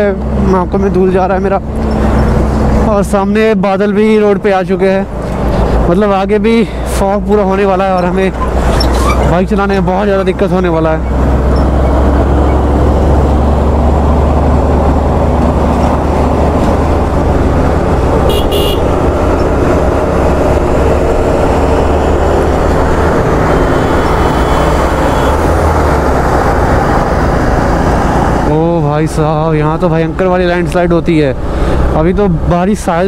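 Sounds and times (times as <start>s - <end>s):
vehicle horn toots: 18.3s - 19.0s, 24.5s - 25.4s.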